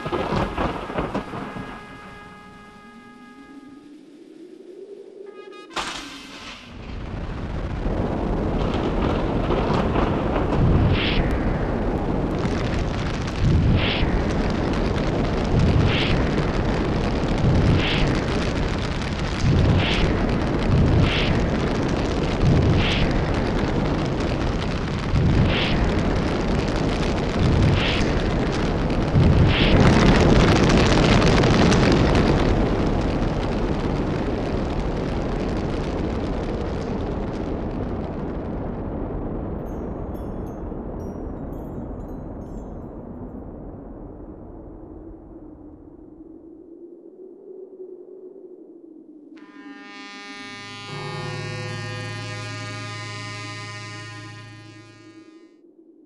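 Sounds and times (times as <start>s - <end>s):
sharp fire blasts: 0.0s - 3.4s, 5.7s - 39.6s
roaring fire: 0.0s - 5.1s, 5.8s - 46.7s.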